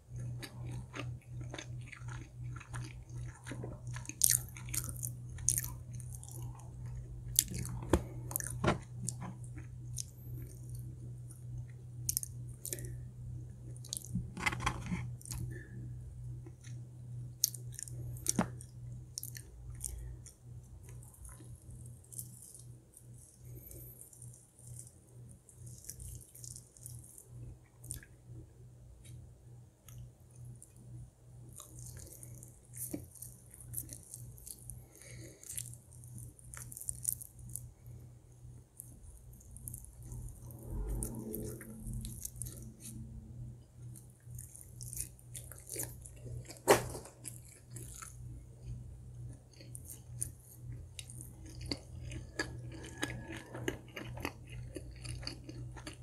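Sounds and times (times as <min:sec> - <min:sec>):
chewing: 0:00.0 - 0:15.8, 0:17.4 - 0:28.2, 0:31.5 - 0:38.0, 0:38.6 - 0:56.0
low hum: 0:00.0 - 0:56.0
crunching bites of fried food: 0:00.1 - 0:10.9, 0:31.5 - 0:37.7, 0:43.9 - 0:56.0.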